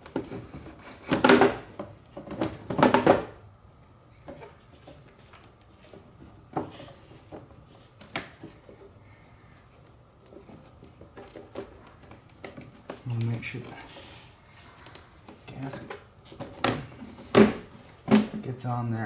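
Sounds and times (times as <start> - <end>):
rustling and knocking: 4.2 - 9.0, 9.6 - 18.5.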